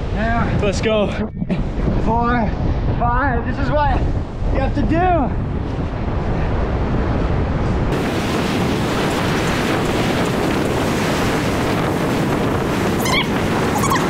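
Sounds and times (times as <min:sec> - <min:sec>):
wind buffeting microphone: 0:00.0 - 0:14.0
ocean surf: 0:05.4 - 0:14.0.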